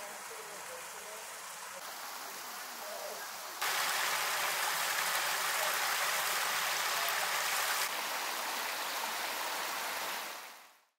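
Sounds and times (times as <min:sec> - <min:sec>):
water cascading over rocks: 0:00.0 - 0:10.8.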